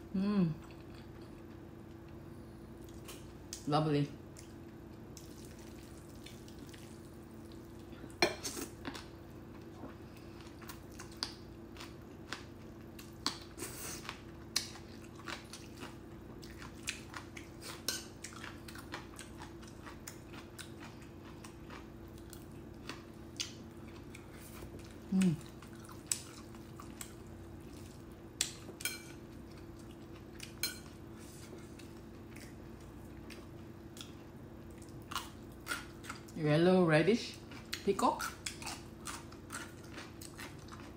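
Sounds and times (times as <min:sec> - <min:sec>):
faint low hum: 0:00.0 - 0:40.9.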